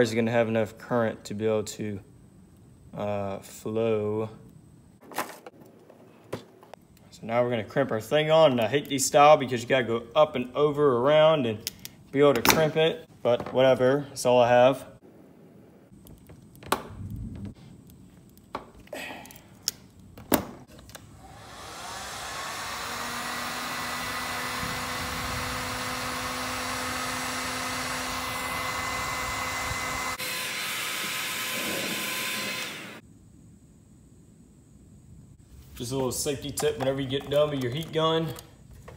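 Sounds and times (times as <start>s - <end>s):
crimping tool clicks and snaps: 19.2s - 20.1s
heat gun blowing: 21.0s - 33.0s.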